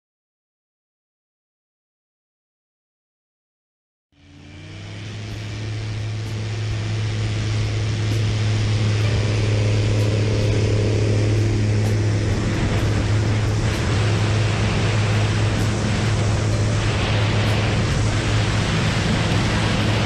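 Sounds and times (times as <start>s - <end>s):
aircraft engine and propeller drone: 4.2s - 20.0s
rushing wind: 4.2s - 20.0s.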